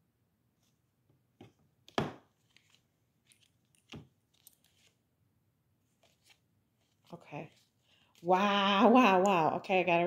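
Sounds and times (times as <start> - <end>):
card laid down tap: 1.4 - 2.3.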